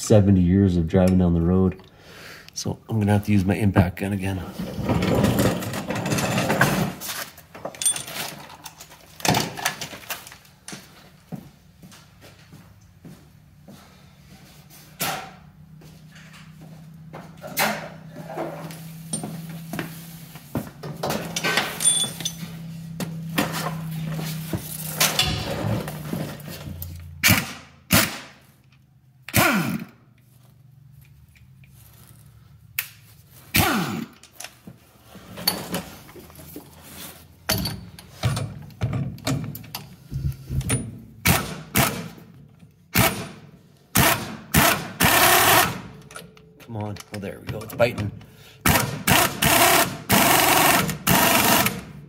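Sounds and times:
impact gun bursts: 27.2 - 28.4, 29.3 - 29.9, 42.9 - 45.9, 48.6 - 51.9.

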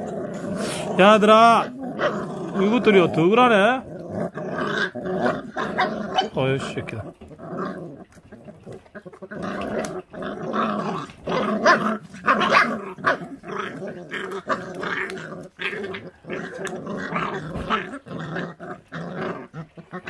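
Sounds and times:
puppy growling: 0.0 - 20.0.

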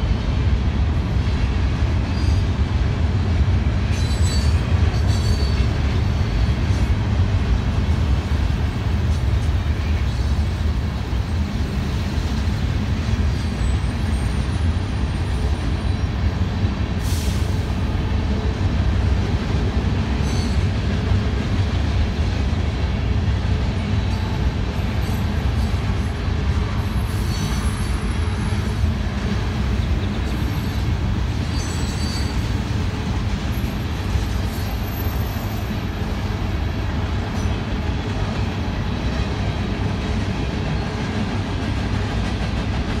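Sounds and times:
train wheels rumbling on rail: 0.0 - 43.0
faint wheel squeals: 31.4 - 32.4.

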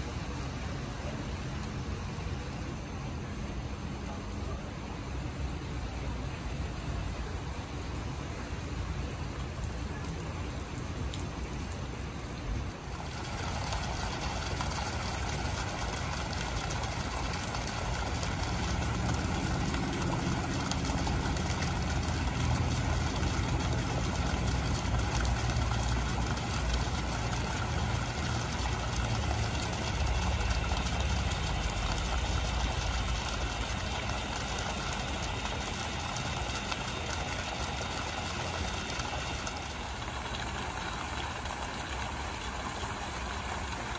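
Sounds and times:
fountain water splashing: 0.0 - 43.9.

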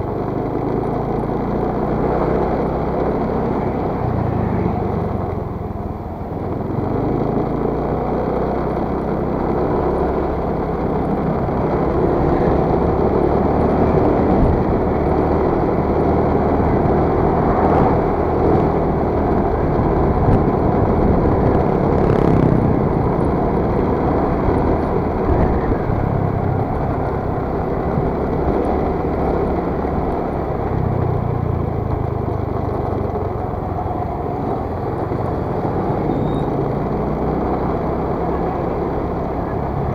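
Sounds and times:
scooter engine and road noise: 0.0 - 39.9
wind rush over microphone: 13.8 - 28.8.

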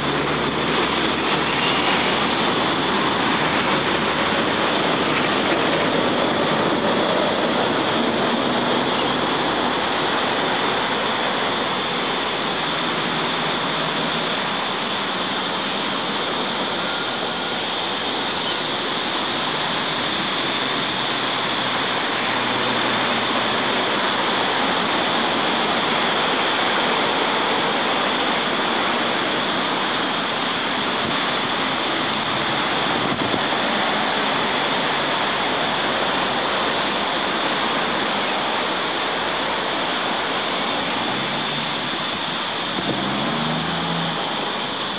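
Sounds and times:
road traffic roar: 0.0 - 44.9.

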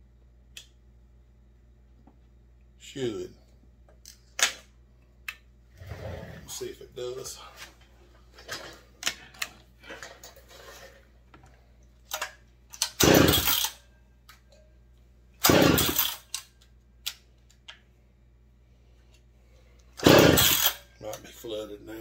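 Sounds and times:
chainsaw recoil starter pulls: 13.0 - 13.7, 15.4 - 16.2, 20.0 - 20.8.

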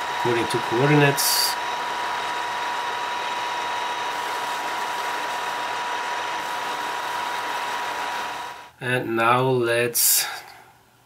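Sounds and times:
milling machine drilling metal: 0.0 - 8.7.

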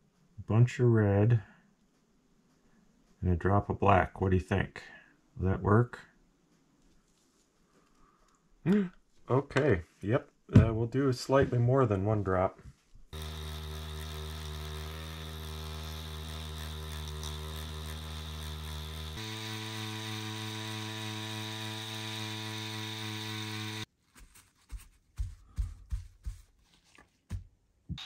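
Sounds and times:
tattoo machine humming: 13.2 - 23.9.

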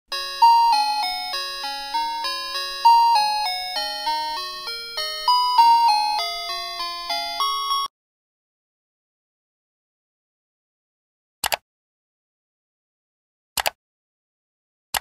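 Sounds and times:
chiming bell-like melody: 0.1 - 7.9.

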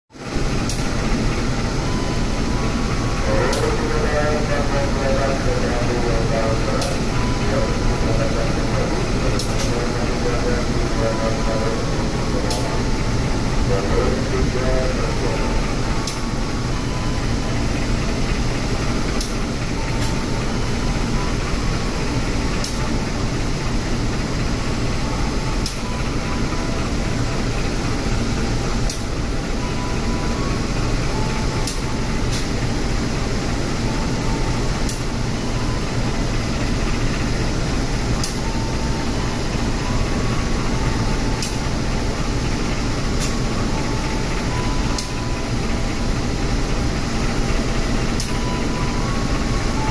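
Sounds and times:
diesel locomotive idling: 0.1 - 49.9.

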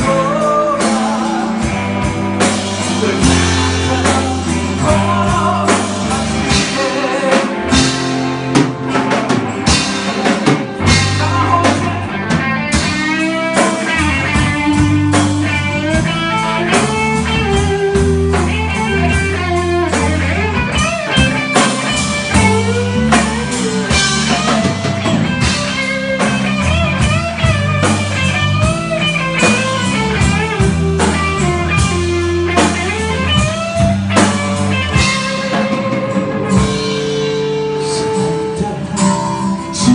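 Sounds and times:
bass: 0.0 - 39.9
drums: 0.0 - 39.9
electric guitar lead with bent notes: 0.0 - 39.9
acoustic guitar: 33.9 - 39.9.

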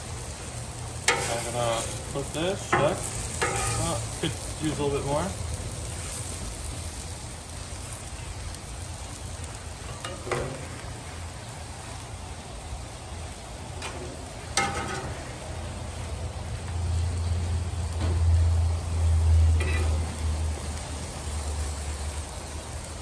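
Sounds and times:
meat and onions sizzling: 0.0 - 23.0
metal spatula scraping griddle: 1.1 - 5.1, 9.8 - 10.8, 19.5 - 20.3.

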